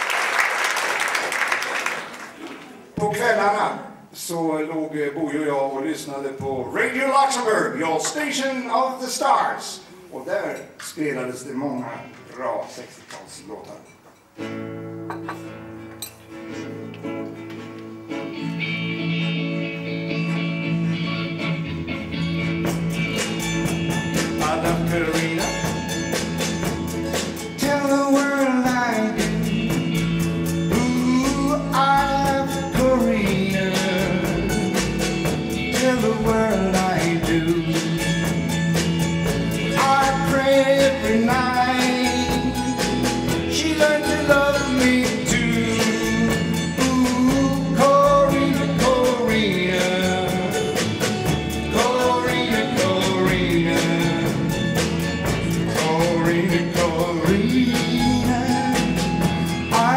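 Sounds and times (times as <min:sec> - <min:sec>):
acoustic guitar strumming: 0:14.2 - 0:59.9
electric guitar: 0:14.4 - 0:59.9
drum kit beat: 0:20.1 - 0:59.9
man singing: 0:24.1 - 0:26.2, 0:27.3 - 0:38.6, 0:39.5 - 0:59.9.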